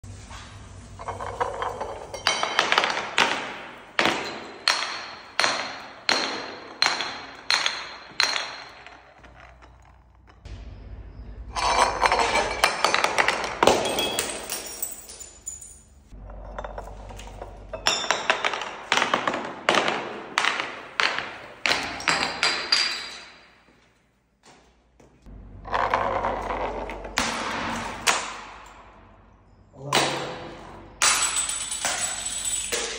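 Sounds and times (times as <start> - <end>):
bottles clinking down stone stairs: 1.0 - 10.5, 11.6 - 23.7, 29.9 - 32.9.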